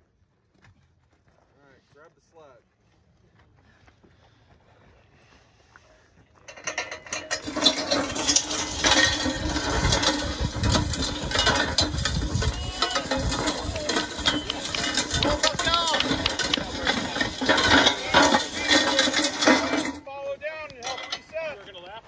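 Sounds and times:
sled scraping over gravelly dirt: 5.8 - 22.0.

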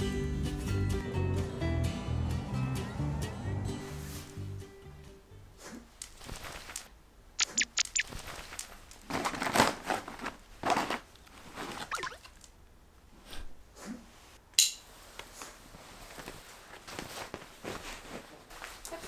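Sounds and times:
bag rustling and crinkling: 6.1 - 6.9, 8.0 - 12.0
sharp clicks: 7.4 - 8.1.

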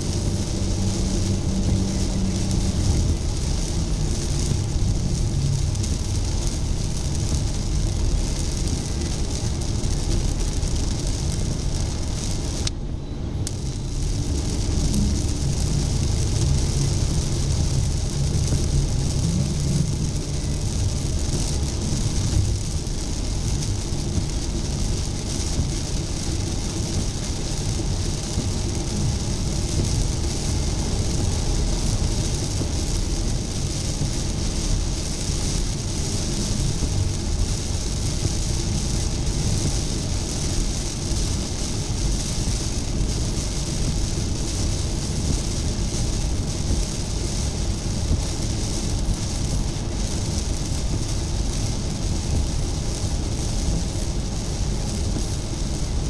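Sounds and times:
rain and spray hissing: 0.0 - 12.7, 13.4 - 56.0.

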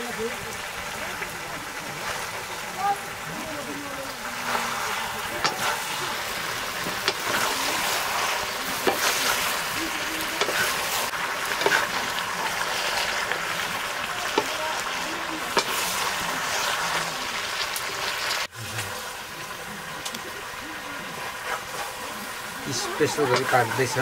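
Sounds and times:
meat sizzling in a wok: 0.0 - 24.0
ladle clicking against wok: 5.4 - 12.0, 15.5 - 16.1.

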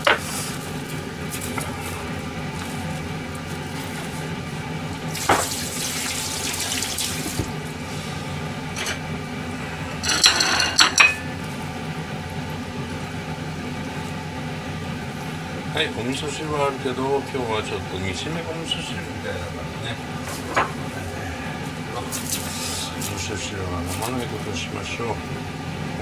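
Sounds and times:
steady low hum: 0.0 - 26.0
running water: 1.8 - 7.6
crockery clinking: 10.0 - 11.3.

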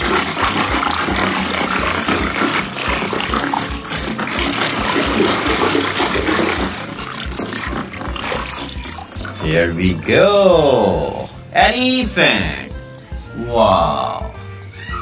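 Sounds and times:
muddy water sloshing in a tub: 0.0 - 11.5.

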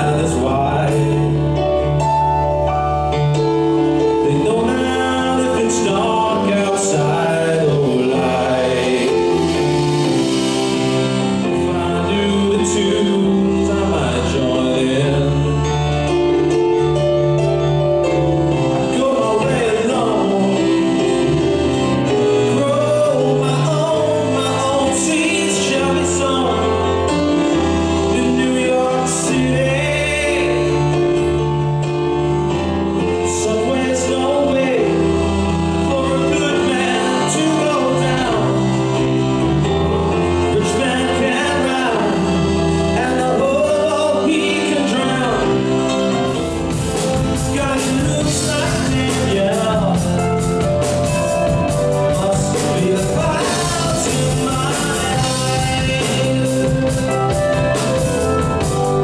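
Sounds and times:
accordion: 0.0 - 59.0
electric bass: 0.0 - 59.0
man singing: 0.0 - 59.0
piano: 0.0 - 59.0
drum kit and cymbals: 3.3 - 14.3, 45.5 - 59.0.

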